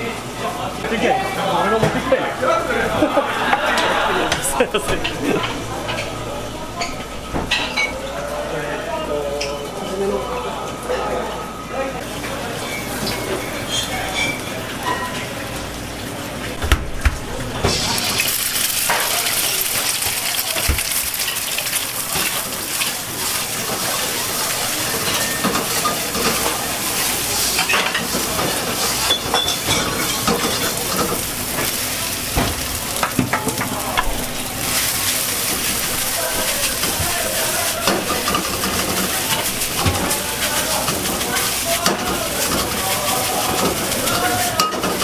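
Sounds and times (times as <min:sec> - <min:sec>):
egg and rice sizzling in wok: 0:17.6 - 0:45.0.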